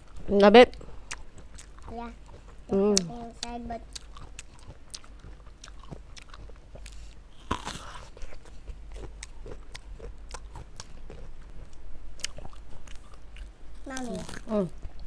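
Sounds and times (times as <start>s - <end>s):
person chewing fruit: 0.0s - 15.0s.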